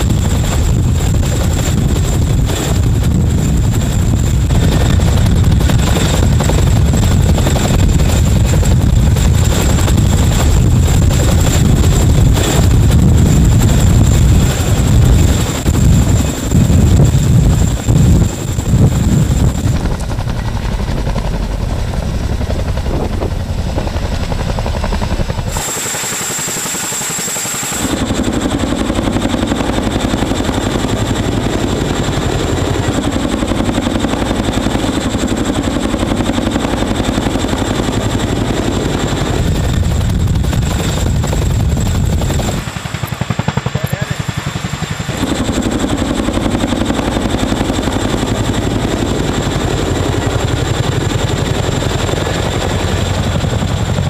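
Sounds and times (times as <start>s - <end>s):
helicopter rotor beat: 0.0s - 54.0s
helicopter turbine whine: 0.0s - 54.0s.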